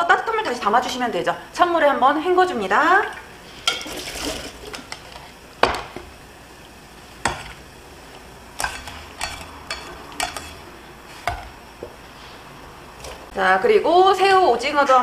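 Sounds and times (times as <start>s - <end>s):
water washing: 2.8s - 4.8s
utensils clicking on bowl and pot: 8.6s - 11.6s.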